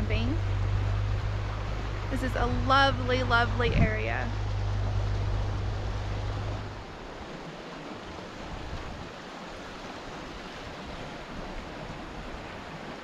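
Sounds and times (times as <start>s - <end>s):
low steady hum: 0.0s - 9.1s.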